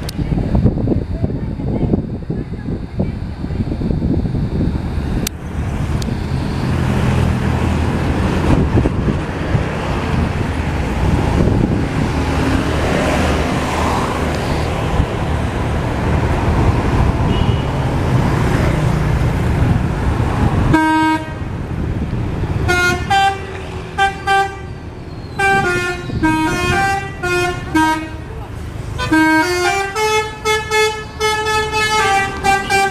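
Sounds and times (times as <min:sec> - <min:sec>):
bus engines and traffic: 0:00.0 - 0:32.9
multi-tone bus horn tune: 0:17.2 - 0:17.9, 0:20.7 - 0:21.6, 0:22.6 - 0:28.4, 0:29.0 - 0:32.9.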